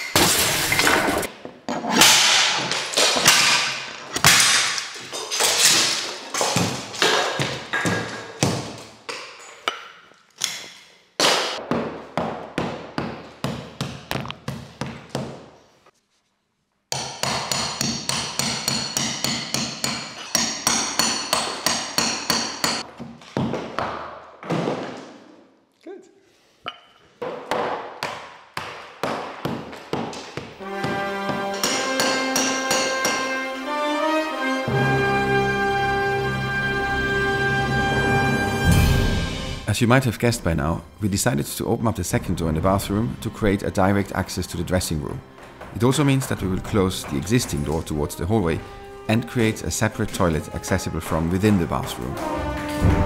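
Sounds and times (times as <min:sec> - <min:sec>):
hammer striking a wall: 0:11.3 - 0:15.5, 0:16.9 - 0:25.0, 0:27.2 - 0:33.3.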